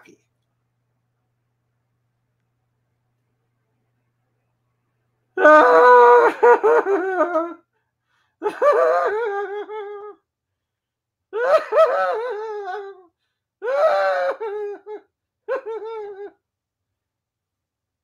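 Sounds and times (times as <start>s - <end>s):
man laughing high-pitched: 6.0s - 7.6s.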